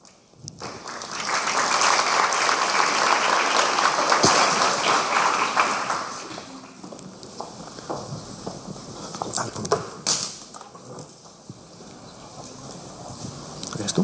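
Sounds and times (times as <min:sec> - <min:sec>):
audience applauding: 0:00.6 - 0:06.8.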